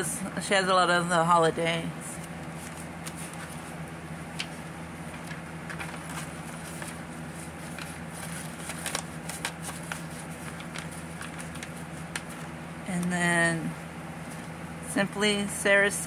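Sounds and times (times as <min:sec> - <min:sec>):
steady low hum: 0:00.0 - 0:16.0
paper and plastic crinkling: 0:02.2 - 0:12.6.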